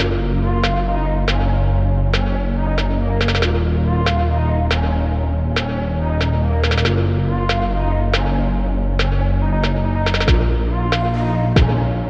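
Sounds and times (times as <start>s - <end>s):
background music with deep bass: 0.0s - 12.0s.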